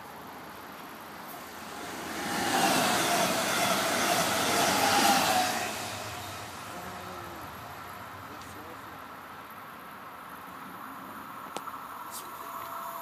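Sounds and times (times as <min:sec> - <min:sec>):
train wheels rumbling: 0:01.0 - 0:09.1
train whine: 0:01.0 - 0:09.2, 0:11.8 - 0:13.0.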